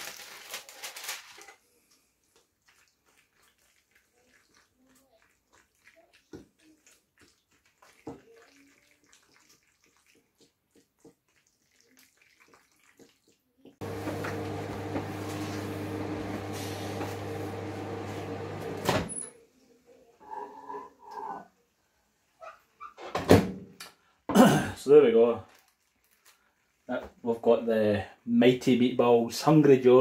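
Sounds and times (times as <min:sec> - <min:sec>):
microwave oven humming: 0:13.8 - 0:19.3.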